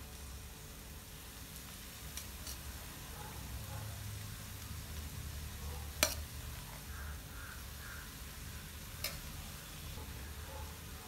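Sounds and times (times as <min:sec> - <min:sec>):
vegetables frying faintly: 0:00.0 - 0:11.0
rice ladled into pan: 0:05.9 - 0:09.8.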